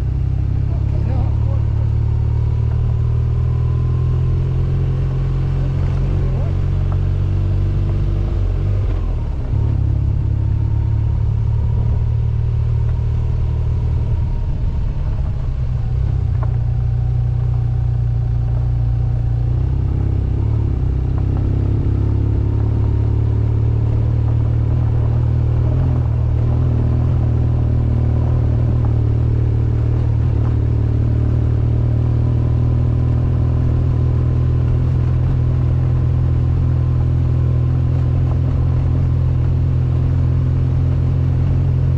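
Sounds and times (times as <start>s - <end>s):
motorcycle engine running: 0.0s - 41.9s.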